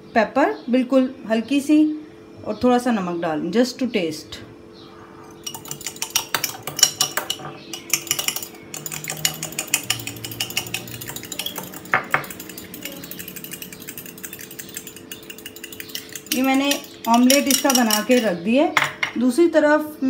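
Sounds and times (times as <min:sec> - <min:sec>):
spoon clinking in glass bowl: 0:05.2 - 0:18.4.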